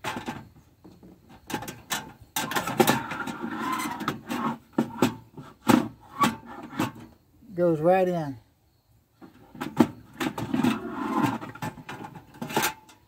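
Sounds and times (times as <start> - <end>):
stove scraping across wood: 1.4 - 7.1, 9.2 - 13.0.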